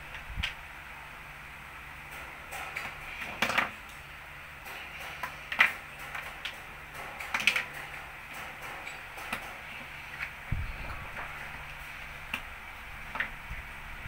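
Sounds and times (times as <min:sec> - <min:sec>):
plastic toy bricks clicking: 0:07.2 - 0:07.7.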